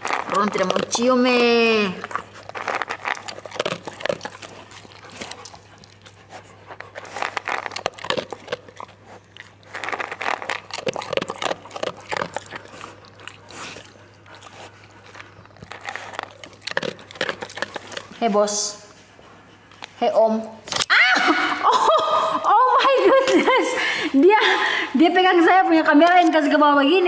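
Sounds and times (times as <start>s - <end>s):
dog panting: 0.0s - 20.6s.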